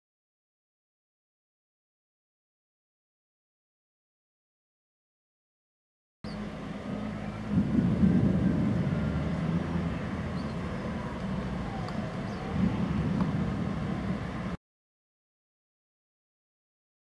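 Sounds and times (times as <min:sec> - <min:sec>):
thunder rumbling: 0:07.1 - 0:14.6.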